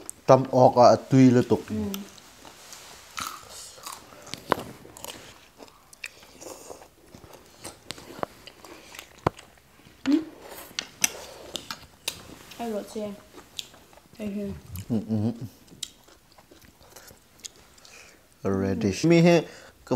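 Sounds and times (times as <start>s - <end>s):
chewing crisp raw beans: 3.2s - 9.7s, 13.2s - 18.4s.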